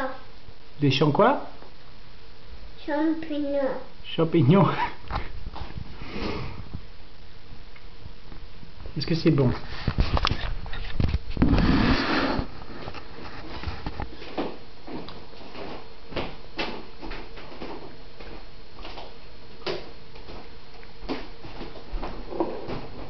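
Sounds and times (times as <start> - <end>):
rumbling scrape: 9.6 - 14.0.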